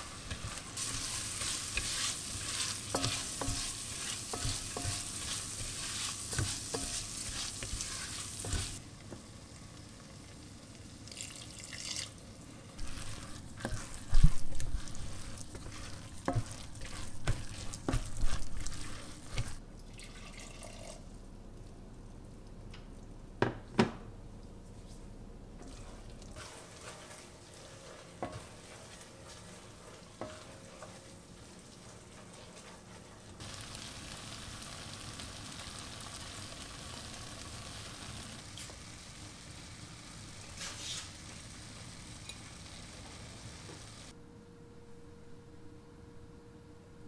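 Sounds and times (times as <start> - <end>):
spatula stirring and scraping: 0.0 - 8.8, 12.4 - 19.6, 25.6 - 33.6, 40.5 - 41.2
food sizzling: 0.0 - 19.6, 25.6 - 44.2.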